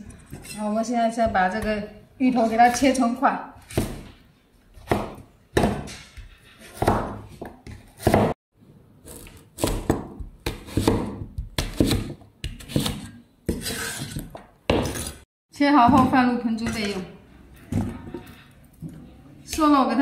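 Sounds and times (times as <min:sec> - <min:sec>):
knife chopping on wooden board: 0:03.6 - 0:08.4, 0:09.1 - 0:15.2.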